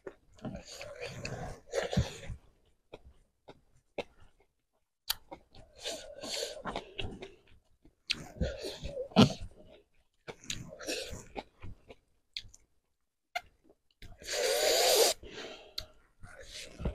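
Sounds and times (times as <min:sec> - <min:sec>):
chewing food: 0:00.0 - 0:12.7.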